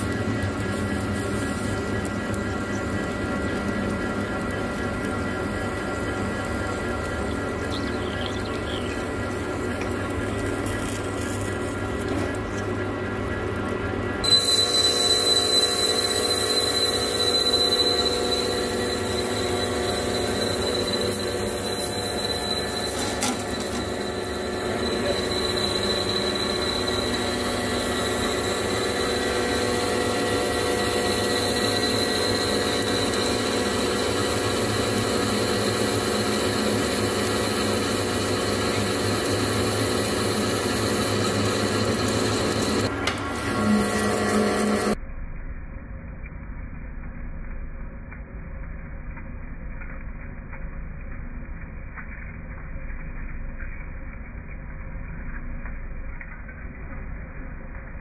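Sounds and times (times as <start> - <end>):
lathe running: 0.0 - 45.0
thin high cutting whine: 0.0 - 45.0.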